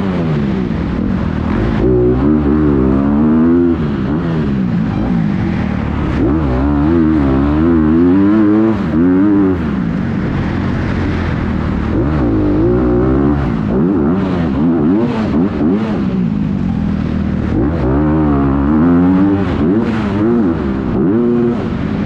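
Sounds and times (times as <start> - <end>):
motocross bike engine revving: 0.0 - 22.0.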